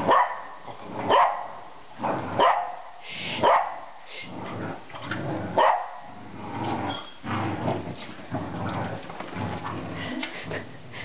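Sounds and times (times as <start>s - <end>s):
dog barking: 0.1s - 0.5s, 1.1s - 1.5s, 2.4s - 3.9s, 5.6s - 6.1s
dogs growling in play: 0.7s - 1.2s, 1.9s - 2.5s, 4.3s - 11.0s.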